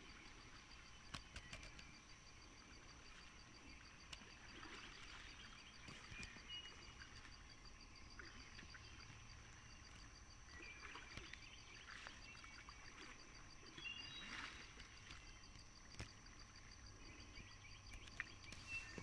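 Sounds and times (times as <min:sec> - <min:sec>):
kayak paddles splashing: 0:02.6 - 0:07.4, 0:08.1 - 0:16.2
bird chirps: 0:17.1 - 0:19.0.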